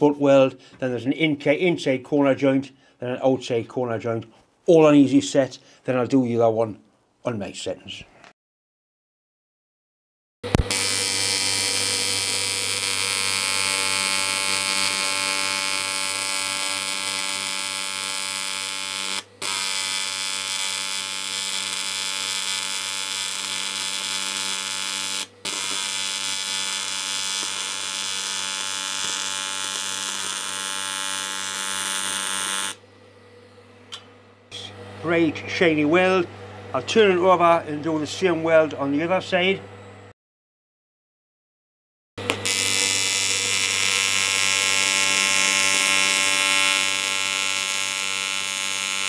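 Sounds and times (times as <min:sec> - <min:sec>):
welding arc buzzing hum: 0:10.5 - 0:39.9, 0:42.2 - 0:49.0.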